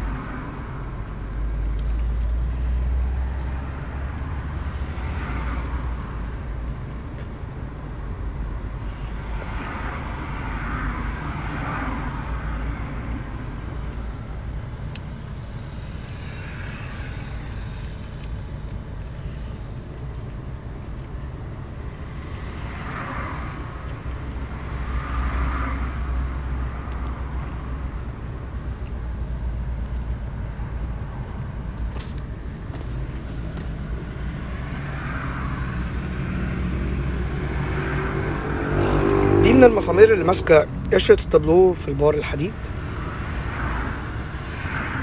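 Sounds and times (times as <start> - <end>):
steady low rumble: 25.8 - 39.1.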